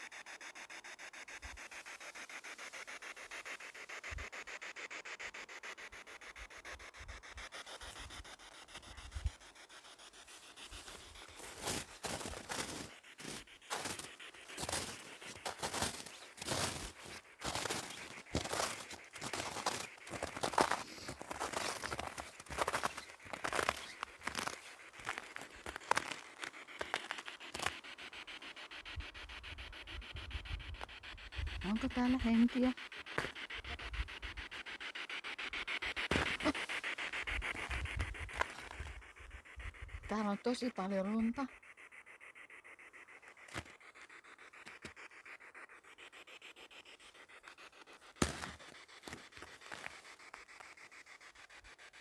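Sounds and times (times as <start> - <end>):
pulsing static hiss: 0.0 - 41.7
scratching and crunching of snow: 7.6 - 27.8, 36.1 - 39.0, 48.2 - 50.8.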